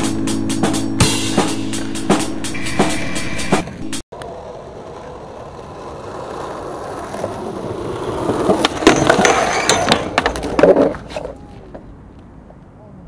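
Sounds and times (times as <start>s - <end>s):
skateboard wheels rolling on asphalt: 1.6s - 12.8s
skateboard grinding metal rail: 2.5s - 11.4s
skateboard hard landing impact: 8.3s - 11.2s.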